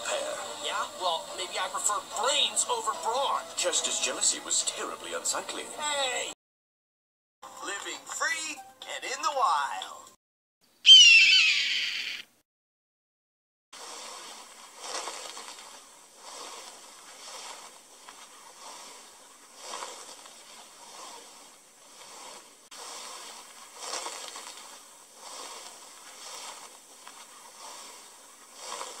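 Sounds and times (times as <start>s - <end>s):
creature dragging across sand: 13.8s - 29.0s.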